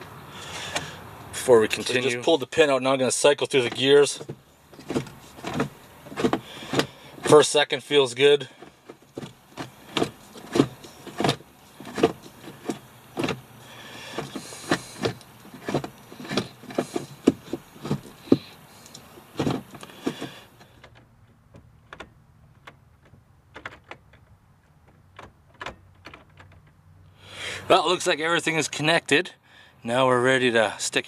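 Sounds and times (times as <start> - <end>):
gear lever clunks and clicks: 3.4 - 7.6, 8.2 - 26.9.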